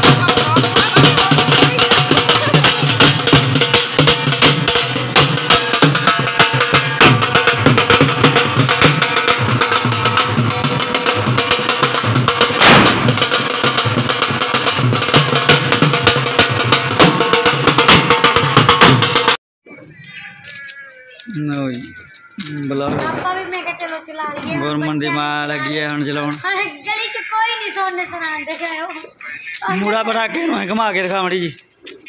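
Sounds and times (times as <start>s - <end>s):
loud drum bang: 0.0s - 19.3s
barrel drums fast rhythm: 0.0s - 19.4s.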